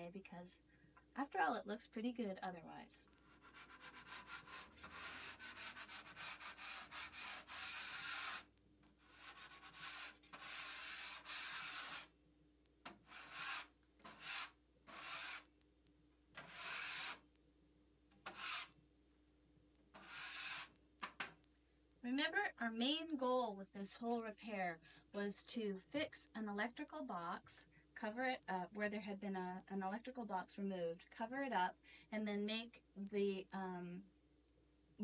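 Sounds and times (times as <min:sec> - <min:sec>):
drywall knife scraping a wall: 0:03.2 - 0:12.1, 0:12.9 - 0:15.5, 0:16.4 - 0:17.2, 0:18.2 - 0:18.7, 0:20.0 - 0:20.7.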